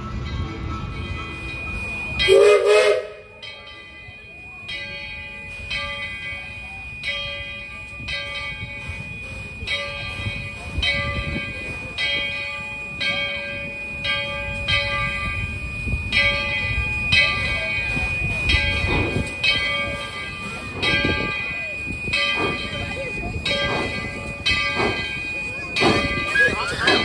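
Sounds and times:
locomotive bell ringing: 0.0 - 27.0.

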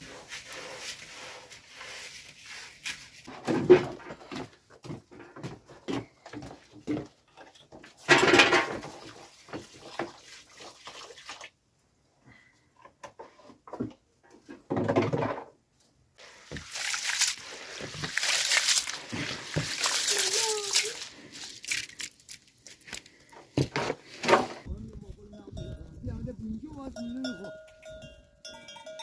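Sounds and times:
water splashing in a bowl: 8.8 - 11.6, 16.4 - 22.5.

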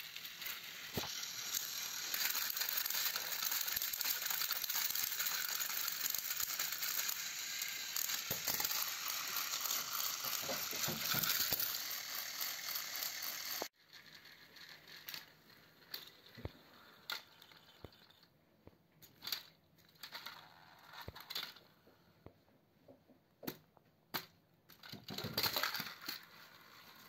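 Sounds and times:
toy train whirring: 0.0 - 18.2, 19.0 - 21.6, 24.2 - 27.0.

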